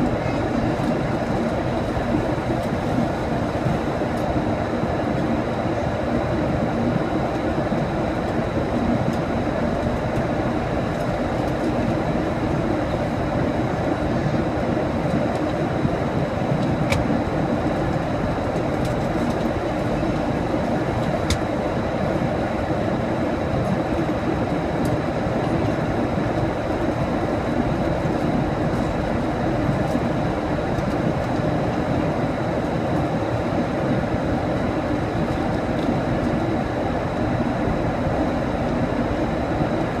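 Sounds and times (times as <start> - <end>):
airliner cabin engine noise: 0.0 - 40.0.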